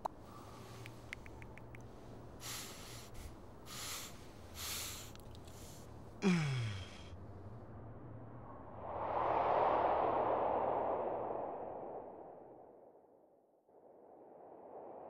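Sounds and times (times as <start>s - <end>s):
man sniffing deeply: 2.4s - 7.1s
man sighing loudly: 6.2s - 7.1s.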